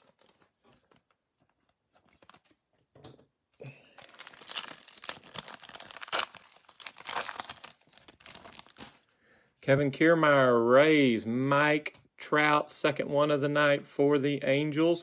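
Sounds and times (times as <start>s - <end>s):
foil wrapper tearing and crinkling: 4.0s - 9.0s.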